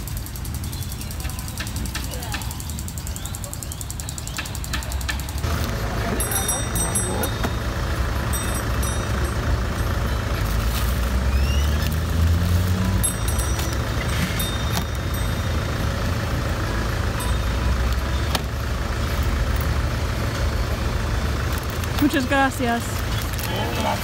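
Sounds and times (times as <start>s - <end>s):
road traffic rumble: 0.0s - 24.0s
vehicle engine passing: 5.3s - 24.0s.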